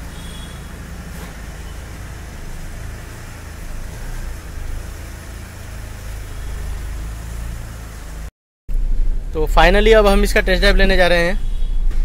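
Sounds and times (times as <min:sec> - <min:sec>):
car engine idling: 0:00.0 - 0:11.4.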